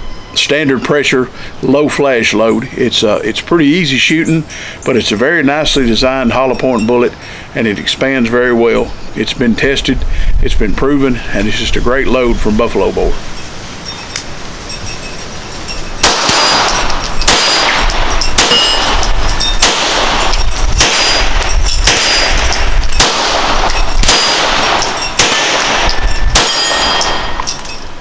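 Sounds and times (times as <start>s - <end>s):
pistol shots ringing: 16.0s - 27.9s.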